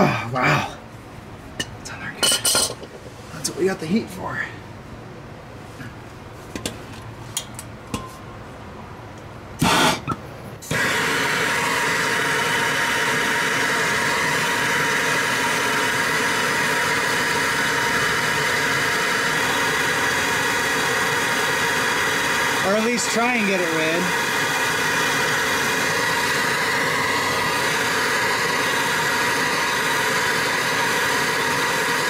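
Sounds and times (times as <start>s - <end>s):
gas torch flame hissing: 9.6s - 32.0s.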